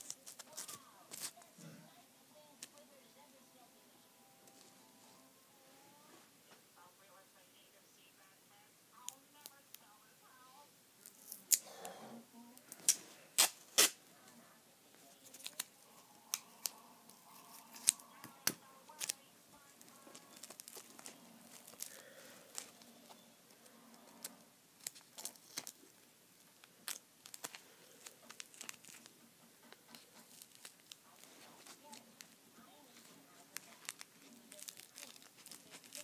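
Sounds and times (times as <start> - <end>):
tape tearing off a roll: 12.7 - 14.0.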